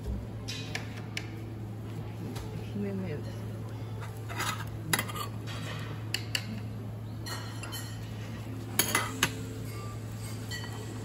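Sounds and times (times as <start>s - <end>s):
dishes and cutlery clinking: 3.2s - 11.0s.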